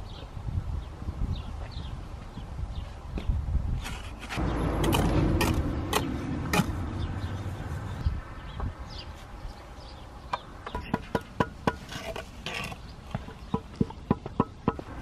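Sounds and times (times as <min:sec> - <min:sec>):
trowel scraping and knocking: 0:03.8 - 0:06.8, 0:10.7 - 0:15.0
brick tapped with ringing taps: 0:13.1 - 0:14.9.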